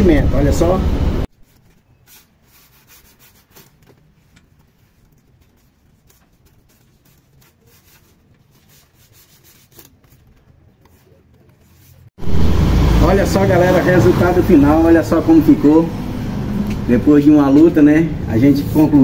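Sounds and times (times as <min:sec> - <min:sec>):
fibre strip rubbing on metal frame: 0:01.3 - 0:12.1.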